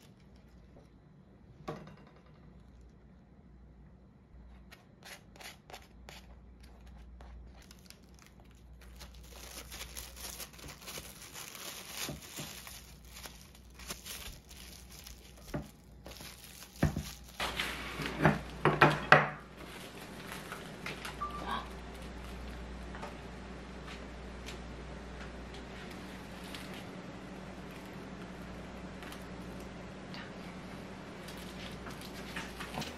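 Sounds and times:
paper and plastic wrap crinkling: 6.6s - 18.6s, 19.6s - 22.7s, 25.7s - 27.0s, 31.2s - 32.9s.

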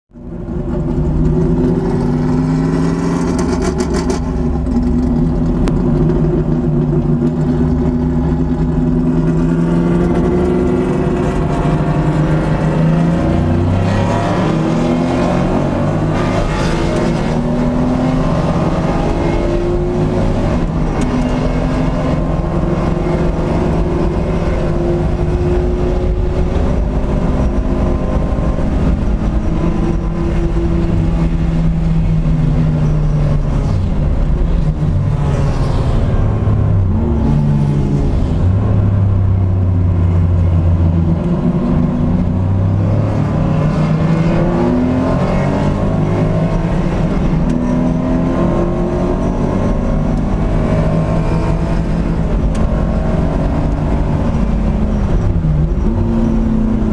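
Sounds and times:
car engine revving hard: 8.4s - 32.2s, 33.6s - 56.9s.

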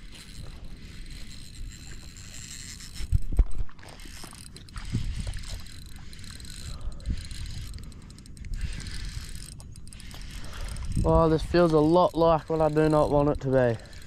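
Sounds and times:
fishing rod and reel handling: 0.0s - 14.0s.

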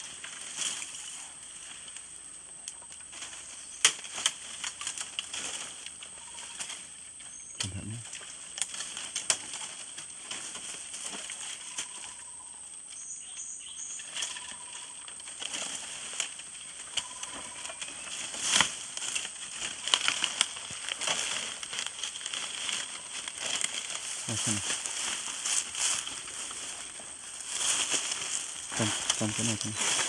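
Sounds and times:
bamboo leaves rustling and snapping: 0.0s - 30.0s
plastic sack crinkling: 17.8s - 30.0s.

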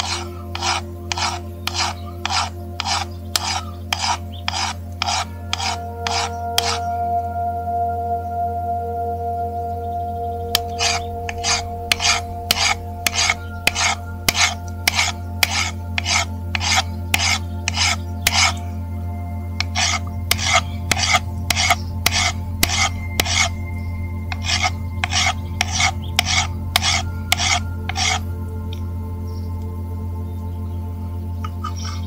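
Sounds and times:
hand file rasping on metal: 0.0s - 6.9s, 10.6s - 18.6s, 19.6s - 23.6s, 24.3s - 28.2s.

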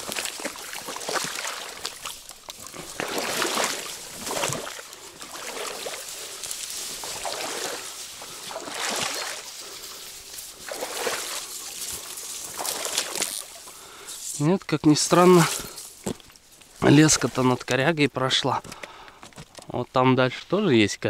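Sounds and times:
water sloshing against bank: 0.0s - 17.8s
reeds and dry grass rustling: 0.0s - 19.7s.

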